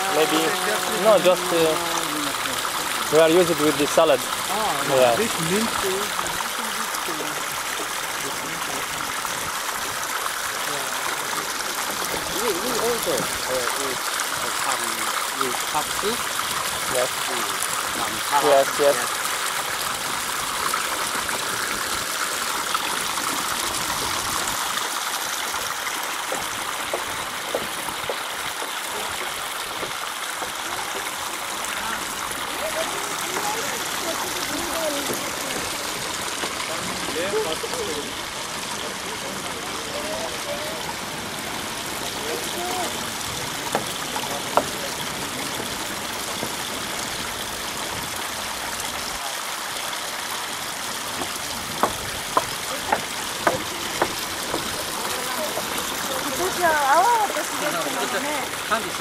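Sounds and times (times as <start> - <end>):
water trickling and gurgling: 0.0 - 59.0.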